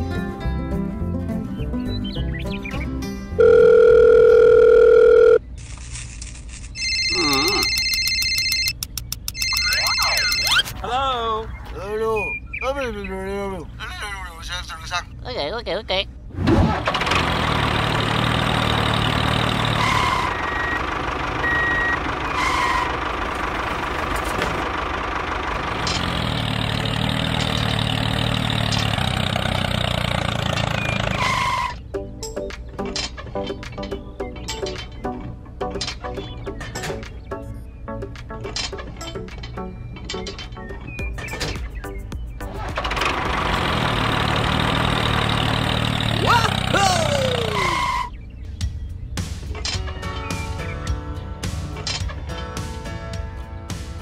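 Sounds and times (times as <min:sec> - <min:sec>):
background music: 0:00.0 - 0:04.6, 0:31.5 - 0:43.9, 0:46.3 - 0:54.0
telephone ring: 0:03.4 - 0:05.4, 0:06.8 - 0:10.6
short high beeps: 0:09.3 - 0:10.7
tractor engine running: 0:16.6 - 0:37.3, 0:38.0 - 0:54.0.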